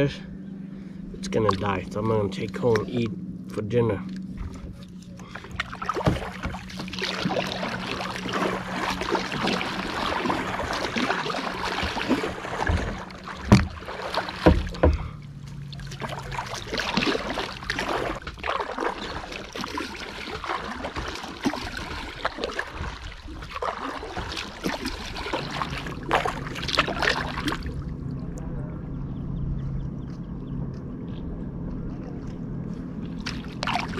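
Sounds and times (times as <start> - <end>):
paddle splashing in water: 4.3 - 27.9, 33.0 - 33.9
faint low hum: 25.8 - 33.9.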